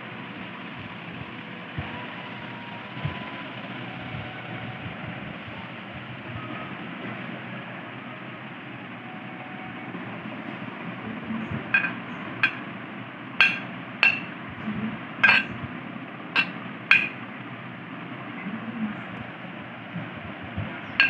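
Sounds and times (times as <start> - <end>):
metal spoon clinking on plate: 11.8 - 12.7, 13.4 - 14.4, 15.2 - 15.6, 16.4 - 17.2.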